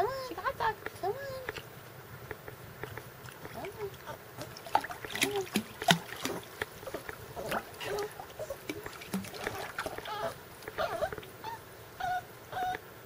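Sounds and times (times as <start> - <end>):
water splashing: 2.8 - 11.4
puppy whimpering: 10.0 - 12.8.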